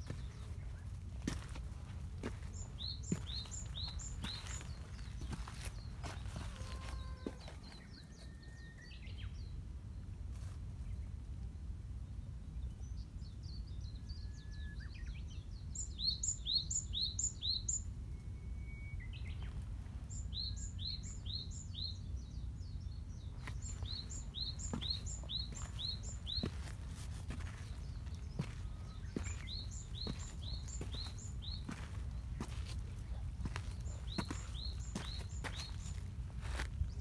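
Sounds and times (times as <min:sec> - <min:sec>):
songbird singing: 0:00.0 - 0:10.1, 0:10.8 - 0:37.0
thin bird whistles: 0:18.1 - 0:19.3.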